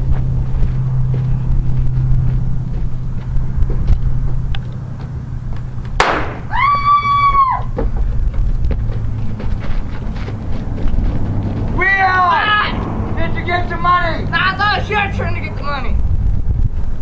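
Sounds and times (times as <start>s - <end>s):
gunshot: 6.0s - 6.5s.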